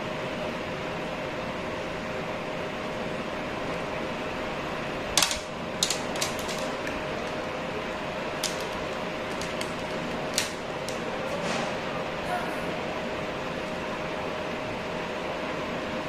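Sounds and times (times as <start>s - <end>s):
small clicks and taps: 8.4s - 11.0s.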